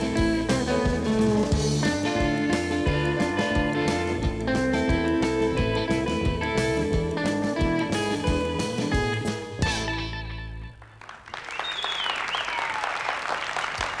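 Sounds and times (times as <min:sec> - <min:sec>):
electric guitar and drums band: 0:00.0 - 0:10.8
audience applause: 0:10.8 - 0:14.0.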